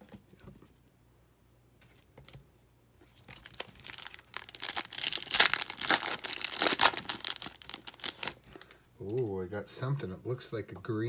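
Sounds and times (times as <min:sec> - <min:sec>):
foil wrapper crinkling: 0:03.2 - 0:09.2.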